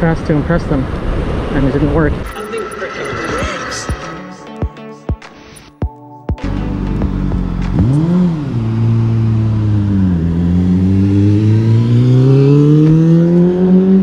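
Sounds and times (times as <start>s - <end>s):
motorcycle engine revving: 6.4s - 14.0s.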